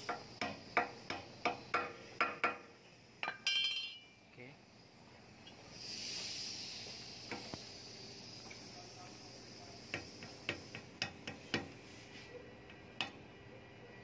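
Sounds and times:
hiss: 0:00.0 - 0:03.0, 0:05.0 - 0:12.4
hammer tapping metal: 0:00.0 - 0:04.1, 0:09.9 - 0:11.8.

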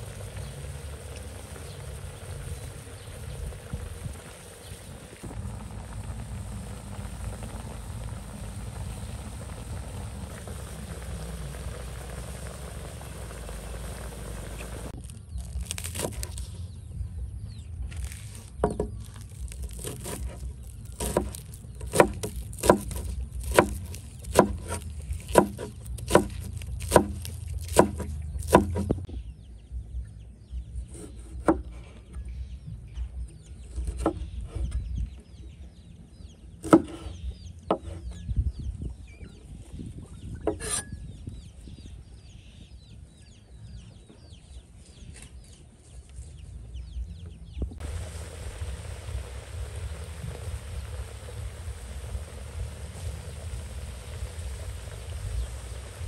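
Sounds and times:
wind noise: 0:00.0 - 0:15.0, 0:37.8 - 0:43.2, 0:47.5 - 0:56.0
chopping strokes: 0:19.6 - 0:29.0.

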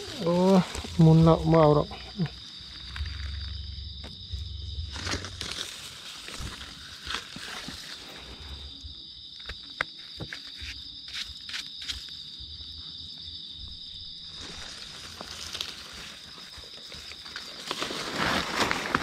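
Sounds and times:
footsteps in dry leaf litter: 0:00.0 - 0:01.9, 0:04.9 - 0:08.3, 0:14.2 - 0:19.0
high-pitched insect drone: 0:00.0 - 0:19.0.

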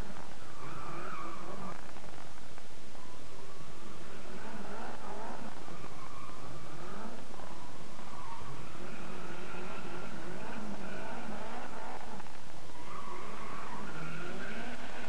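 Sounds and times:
car engine revving hard: 0:04.0 - 0:07.3, 0:08.3 - 0:15.0.

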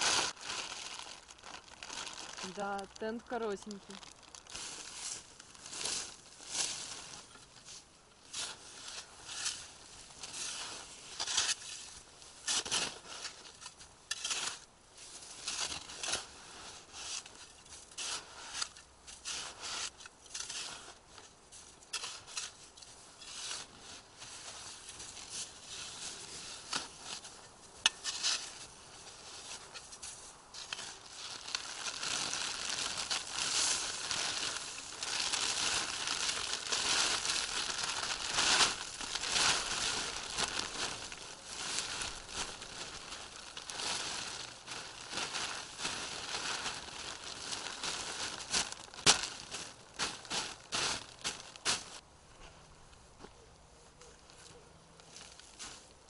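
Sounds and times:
plastic tarp rustling: 0:00.0 - 0:12.0, 0:28.5 - 0:52.0
snow shovel scraping snow: 0:04.6 - 0:13.5, 0:14.1 - 0:31.4.

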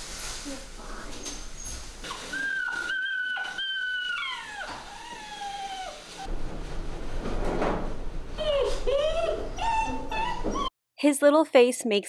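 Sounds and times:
puppy whining: 0:01.6 - 0:06.3, 0:08.4 - 0:10.7.

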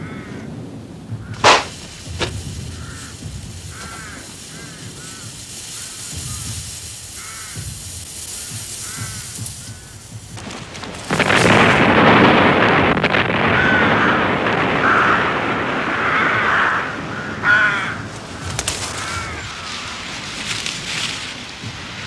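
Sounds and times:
crows cawing: 0:00.0 - 0:00.6, 0:01.2 - 0:11.9, 0:12.7 - 0:21.4
fire roaring: 0:00.0 - 0:22.0
loud burst of noise: 0:01.2 - 0:22.0.

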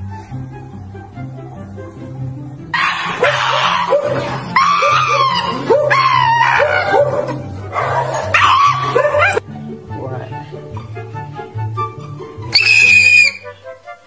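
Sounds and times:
background music with plucked bass: 0:00.0 - 0:14.0
dog screaming shrilly: 0:02.8 - 0:09.4, 0:12.5 - 0:13.6.

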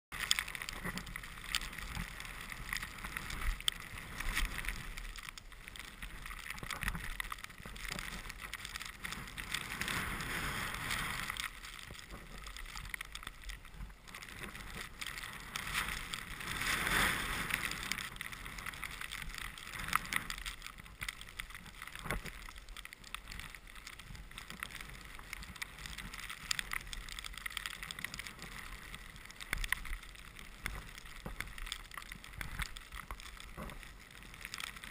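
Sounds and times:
skis hissing through snow: 0:09.3 - 0:11.7, 0:15.3 - 0:18.9.

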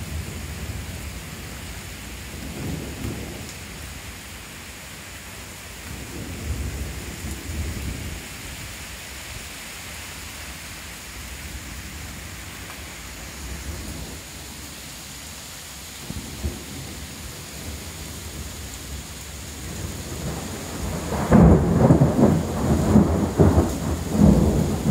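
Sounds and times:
heavy rain falling: 0:00.0 - 0:24.9
rolling thunder rumble: 0:02.3 - 0:03.6, 0:16.0 - 0:24.9.

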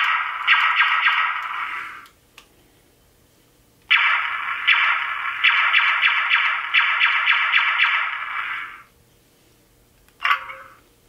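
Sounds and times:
electronic blaster shots: 0:00.0 - 0:02.0, 0:03.9 - 0:08.9.

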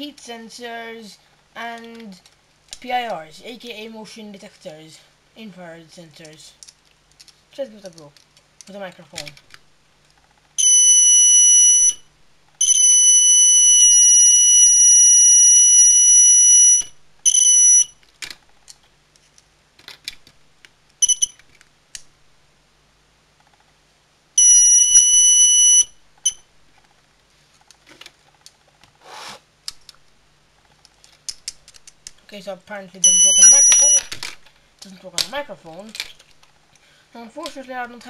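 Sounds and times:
high-pitched electronic alarm tone: 0:10.6 - 0:17.9, 0:21.0 - 0:21.4, 0:24.4 - 0:26.4, 0:33.0 - 0:34.1
clip leads clicking: 0:30.7 - 0:32.2.

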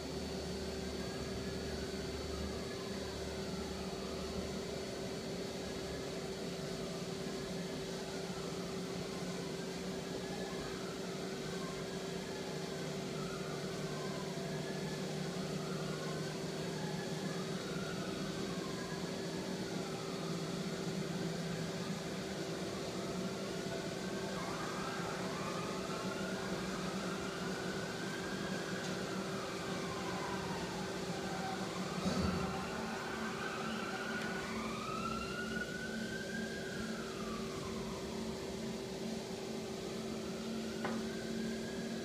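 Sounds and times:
lathe machine hum: 0:00.0 - 0:42.0
motor whine rising and falling: 0:24.1 - 0:38.2.

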